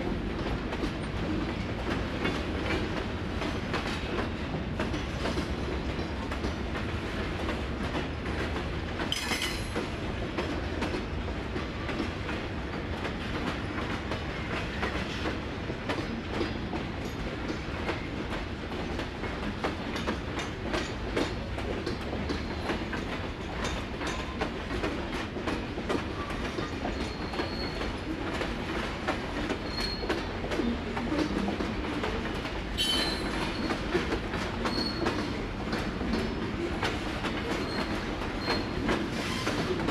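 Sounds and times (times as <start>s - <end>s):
freight train rumbling: 0.0s - 39.9s
wheels clacking over rail joints: 0.2s - 39.9s
high wheel squeals: 27.0s - 27.8s, 32.8s - 33.8s, 34.6s - 35.1s.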